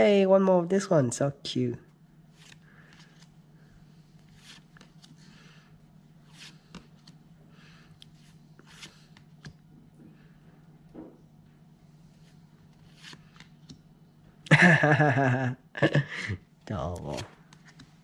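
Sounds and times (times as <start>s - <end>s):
low steady hum: 0.0s - 18.0s
cards flicking and rustling: 2.3s - 3.4s, 4.2s - 5.5s, 6.2s - 7.2s, 7.9s - 9.7s, 12.2s - 13.9s, 16.8s - 18.0s.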